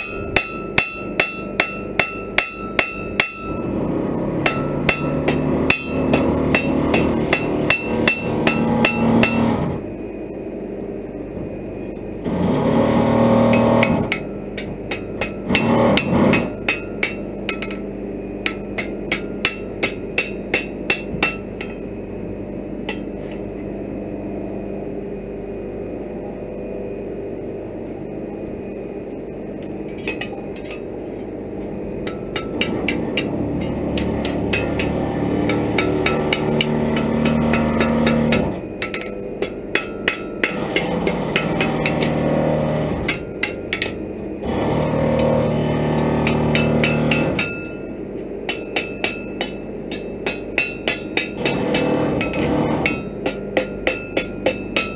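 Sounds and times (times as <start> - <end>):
hammer striking iron on anvil: 0.0 - 9.8, 13.5 - 21.9, 22.9 - 23.4, 30.0 - 31.0, 32.0 - 44.4, 46.0 - 54.9
steady background noise: 0.0 - 54.9.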